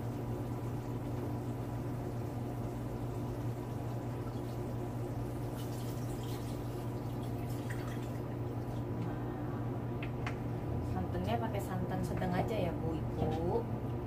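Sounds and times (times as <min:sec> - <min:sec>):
faint drips and splashes: 0:00.0 - 0:09.2
steady low hum: 0:00.0 - 0:14.0.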